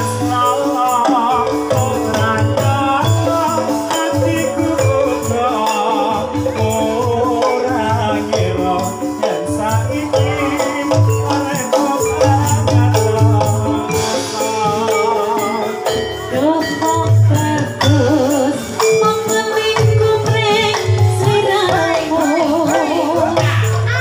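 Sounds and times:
wavering melodic line: 0.0 - 23.8
drum and percussion ensemble: 0.0 - 24.0.

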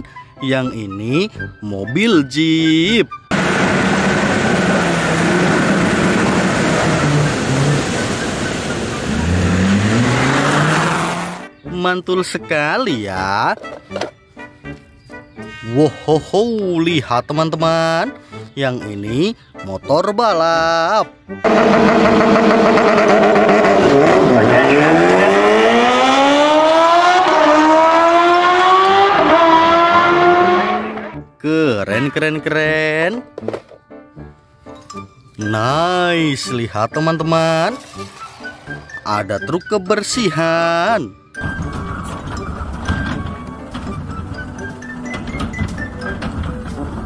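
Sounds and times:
car engines revving: 3.3 - 11.5, 21.4 - 31.2.

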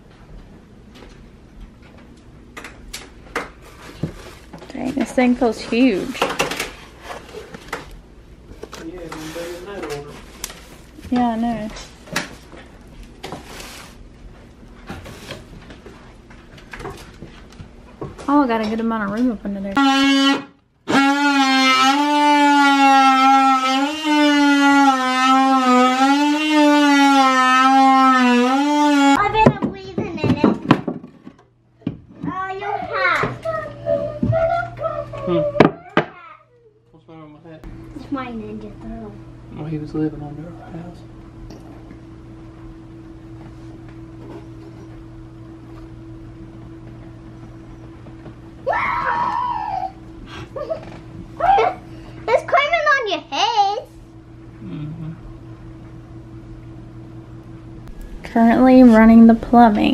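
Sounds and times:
low electrical hum: 0.0 - 59.9
child's high-pitched vocal sound: 32.5 - 36.8.

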